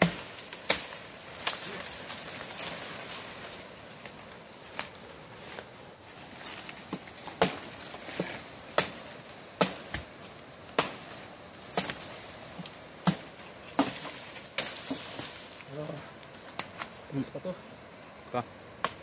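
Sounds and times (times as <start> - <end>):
machete chopping wooden pole: 0.0 - 1.6, 9.6 - 10.1, 10.7 - 11.0, 13.0 - 15.3, 18.8 - 19.0.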